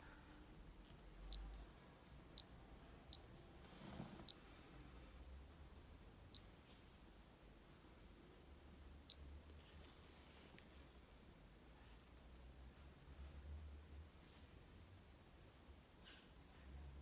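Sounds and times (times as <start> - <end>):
digital watch beeps: 1.3 - 1.5, 2.4 - 3.4, 9.1 - 9.3.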